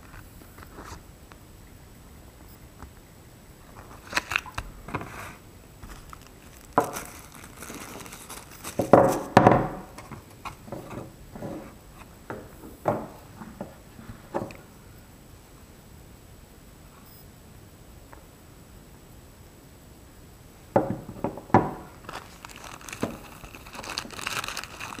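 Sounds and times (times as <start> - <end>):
paper rustling and crinkling: 3.6 - 11.8, 21.8 - 25.0.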